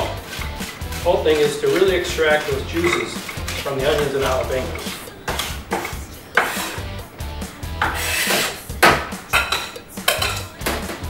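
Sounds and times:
knife scraping on wooden board: 0:00.0 - 0:07.0, 0:07.7 - 0:08.7.

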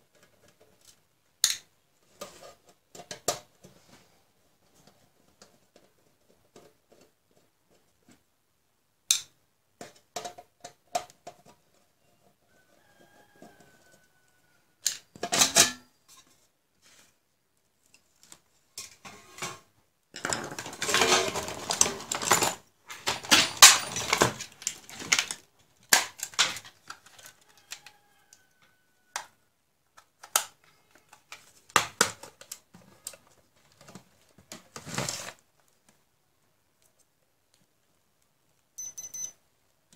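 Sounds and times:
metal case and tools clattering: 0:20.2 - 0:25.4.

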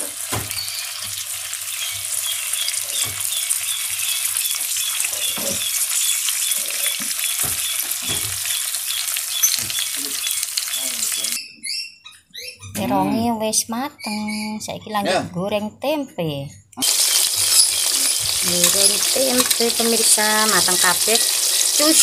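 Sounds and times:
eggplant sizzling in hot oil: 0:00.0 - 0:11.4, 0:16.8 - 0:22.0.

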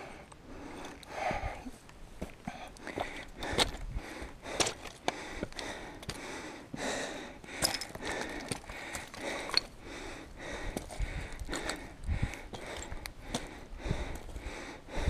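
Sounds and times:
person breathing: 0:00.0 - 0:01.8, 0:02.4 - 0:15.0
footsteps on loose stones: 0:02.2 - 0:06.4, 0:07.5 - 0:14.5.

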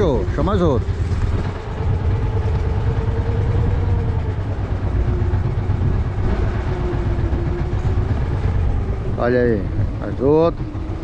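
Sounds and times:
boat engine running: 0:00.0 - 0:11.0.

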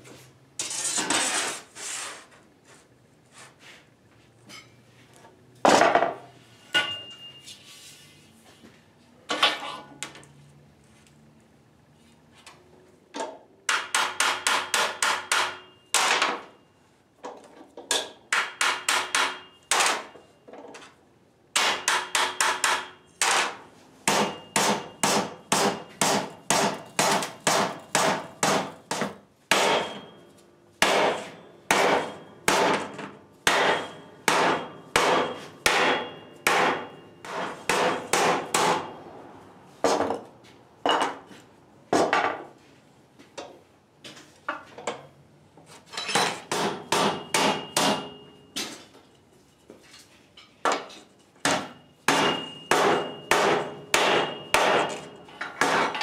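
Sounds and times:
hammer striking sheet metal: 0:13.7 - 0:16.4, 0:17.9 - 0:20.2, 0:21.6 - 0:30.2, 0:30.8 - 0:39.0, 0:46.2 - 0:48.3, 0:51.4 - 0:56.0.

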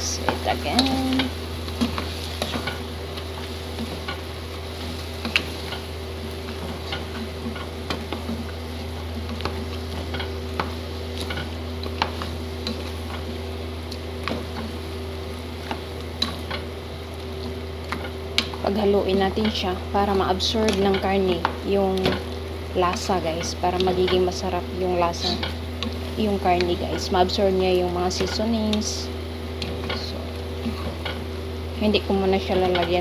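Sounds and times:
low hum: 0:00.0 - 0:33.0
meat sizzling: 0:00.1 - 0:18.6.

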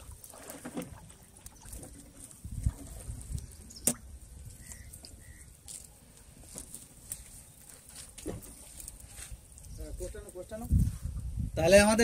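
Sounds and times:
fishing net being hauled: 0:00.0 - 0:03.5, 0:04.9 - 0:09.7.

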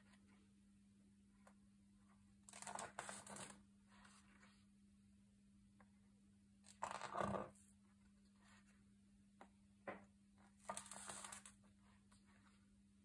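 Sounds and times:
faint steady hum: 0:00.0 - 0:13.0
book pages turning: 0:02.5 - 0:04.6, 0:10.6 - 0:11.6.

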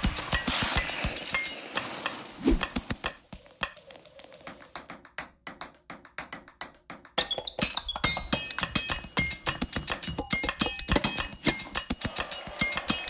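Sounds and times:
ice skates scraping to a stop: 0:00.0 - 0:04.6.

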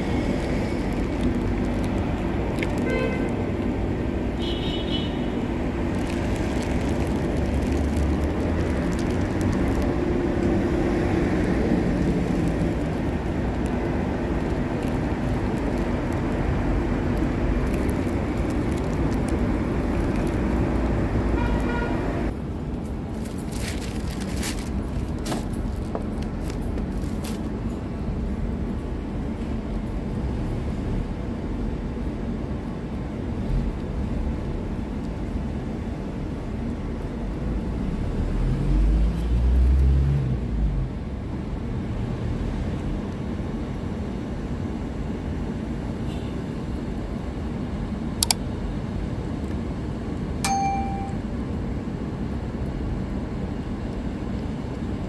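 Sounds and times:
low rumble of street traffic: 0:00.0 - 0:55.0
sharp clicks: 0:48.2 - 0:48.4.

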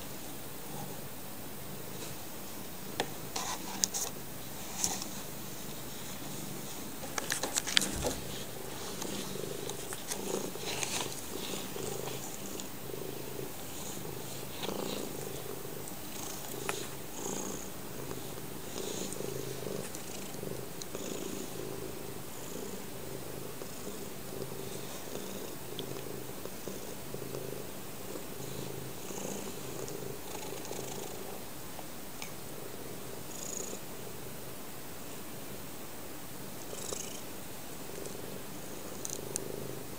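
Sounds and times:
cat purring: 0:00.0 - 0:35.7, 0:36.4 - 0:39.9
handling rustles: 0:06.0 - 0:12.7.

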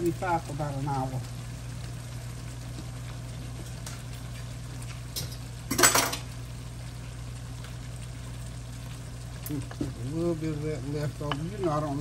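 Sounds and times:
steady low hum: 0:00.0 - 0:12.0
kitchen utensils clattering: 0:05.2 - 0:06.2.

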